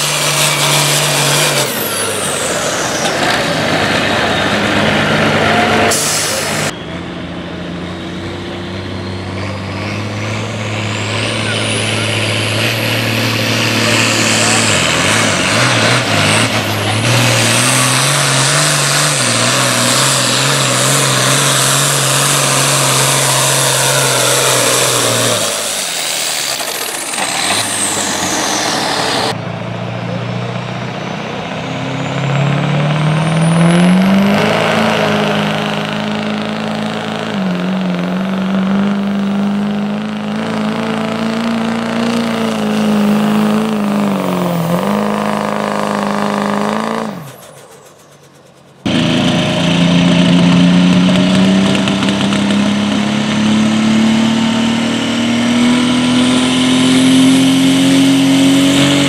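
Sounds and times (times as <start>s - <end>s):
pickup engine revving under load: 0.0s - 59.0s
tractor engine running under load: 34.3s - 57.0s.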